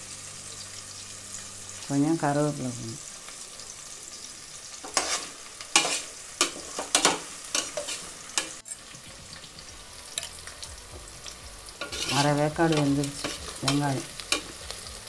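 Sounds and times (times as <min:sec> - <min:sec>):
onions sizzling in hot oil: 0:00.0 - 0:15.0
metal spoon scraping a pot: 0:04.8 - 0:08.9, 0:11.8 - 0:14.6.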